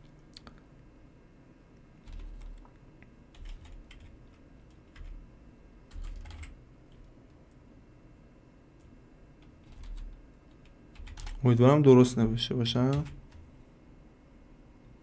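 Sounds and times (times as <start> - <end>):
computer keyboard typing: 2.0 - 5.2, 5.9 - 7.1, 8.8 - 11.4, 12.8 - 13.5.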